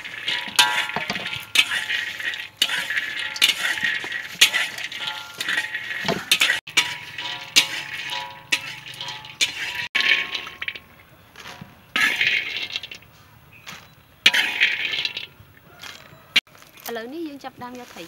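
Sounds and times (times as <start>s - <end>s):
peanuts rattling in plastic colander: 12.1s - 13.0s, 14.6s - 15.3s.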